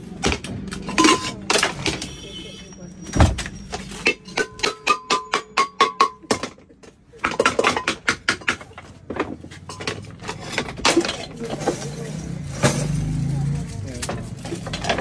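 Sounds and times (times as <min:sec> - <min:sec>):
metal clattering and knocks: 0:03.1 - 0:15.0.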